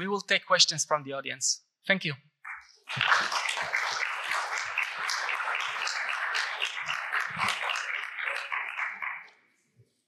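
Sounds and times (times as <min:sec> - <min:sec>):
audience applauding: 0:02.9 - 0:09.4.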